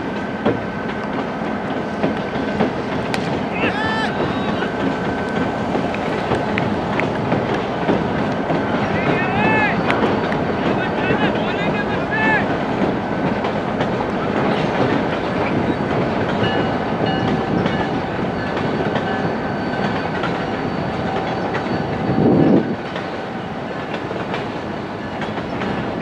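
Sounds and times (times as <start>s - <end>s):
faint high squeal-like tones: 16.6s - 22.8s.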